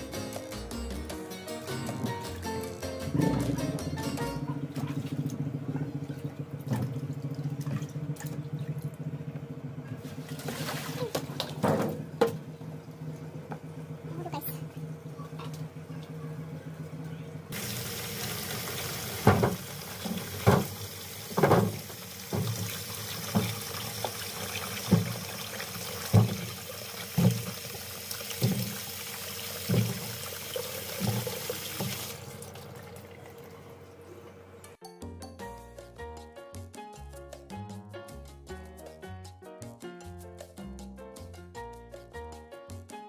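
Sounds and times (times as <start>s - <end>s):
tap water running into tub: 4.4s - 14.9s, 17.5s - 33.9s.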